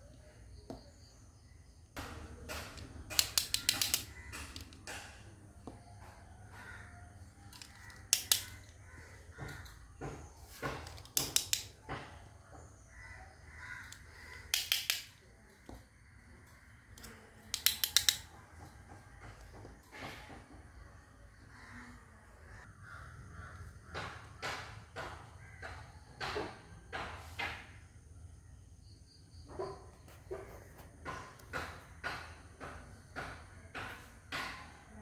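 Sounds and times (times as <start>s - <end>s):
plastic toy cutlery clicking: 2.5s - 5.1s, 7.5s - 8.8s, 10.8s - 11.7s, 13.8s - 15.2s, 17.0s - 18.3s.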